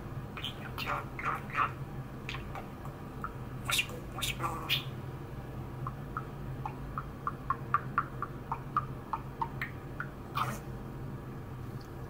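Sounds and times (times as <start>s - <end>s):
budgerigar chattering: 0.4s - 5.0s, 5.9s - 10.7s.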